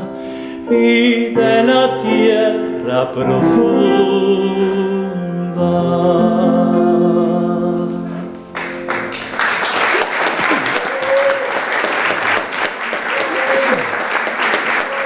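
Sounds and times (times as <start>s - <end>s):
baritone and piano chord: 0.0s - 9.5s
audience applause: 8.5s - 15.0s.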